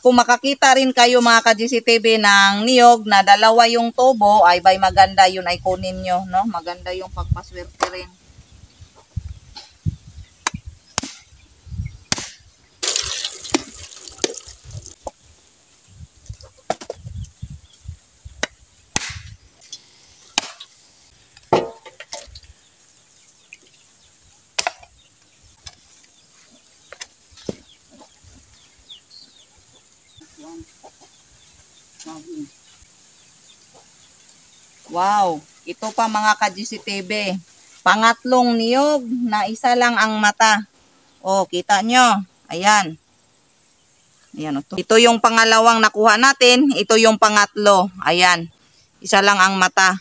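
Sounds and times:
knife blade striking coconut shells: 12.1s - 12.4s, 20.4s - 20.6s.

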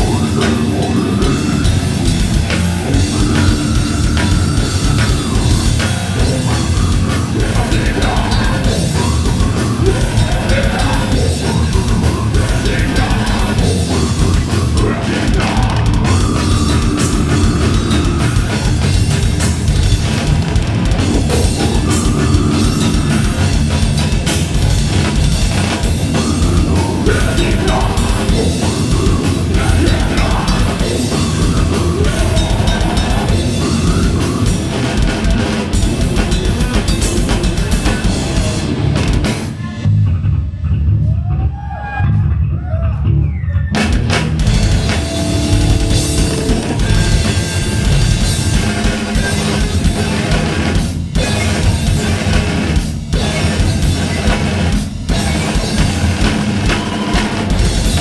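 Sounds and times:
death metal band playing: 0.0s - 40.9s, 41.9s - 58.0s
distorted electric guitars: 0.0s - 58.0s
rapid drum hits: 44.0s - 58.0s.

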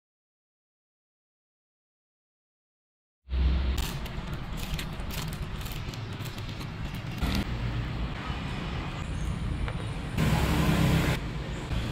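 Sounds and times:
road traffic rumble: 3.3s - 11.9s.

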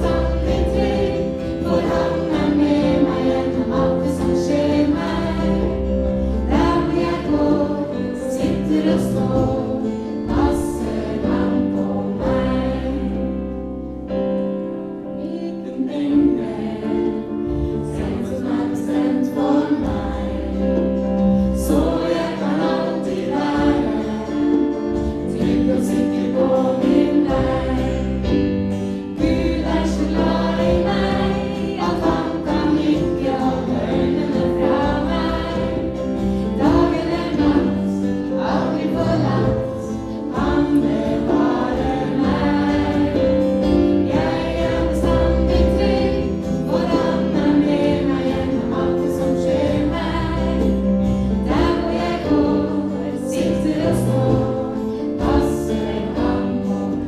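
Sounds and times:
congregation singing: 0.0s - 57.0s
woman singing lead: 15.1s - 21.0s
acoustic guitar: 15.9s - 57.0s.

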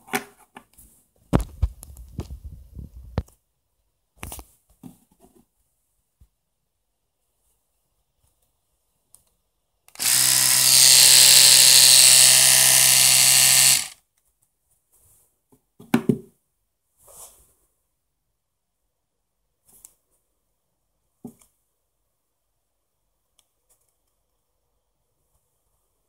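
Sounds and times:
electric toothbrush buzzing: 9.9s - 14.0s.

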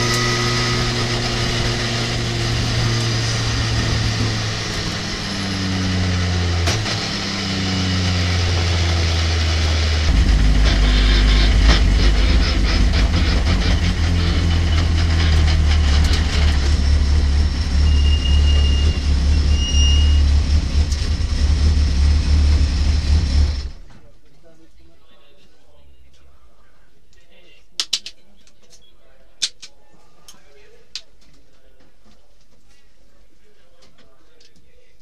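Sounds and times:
truck engine slowing: 0.0s - 23.8s
rattling and clicks: 10.1s - 17.7s.

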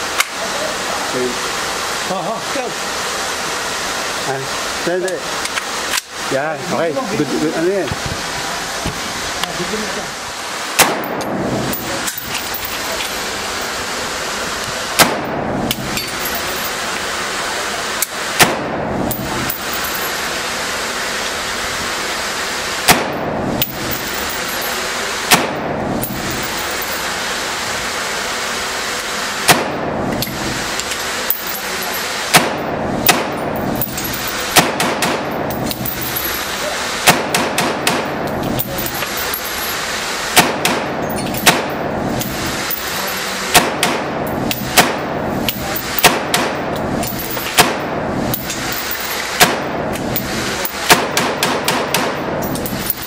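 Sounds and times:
steady hiss: 0.0s - 53.0s
rifle shots cracking: 10.8s - 12.4s, 15.0s - 15.8s, 18.4s - 19.4s, 22.8s - 24.4s, 25.3s - 26.4s, 29.5s - 30.0s, 32.3s - 36.2s, 37.0s - 38.4s, 40.3s - 41.9s, 43.5s - 45.2s, 45.9s - 46.8s, 47.4s - 48.1s, 49.3s - 49.9s, 50.8s - 52.4s.

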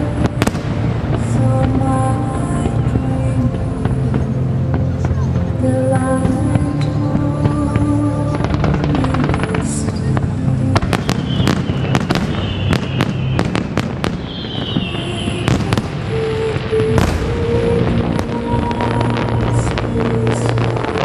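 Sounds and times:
fireworks crackling pops: 0.0s - 21.0s
fireworks sharp bangs: 0.0s - 21.0s
firework whistle gliding down: 11.3s - 19.8s.

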